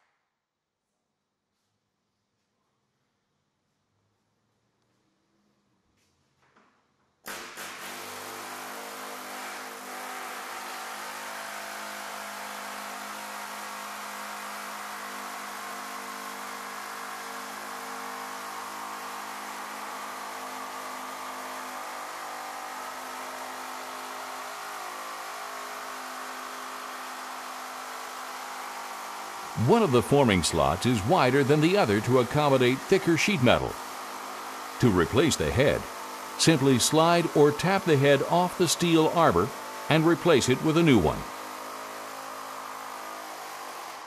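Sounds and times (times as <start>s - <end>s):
pneumatic air hammer droning: 7.3s - 21.9s.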